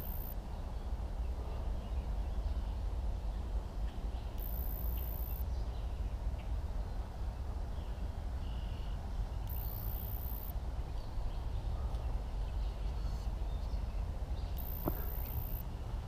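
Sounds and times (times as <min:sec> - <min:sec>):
low outdoor background noise: 0:00.0 - 0:16.0
faint bird chirps: 0:04.1 - 0:06.0, 0:07.8 - 0:15.6.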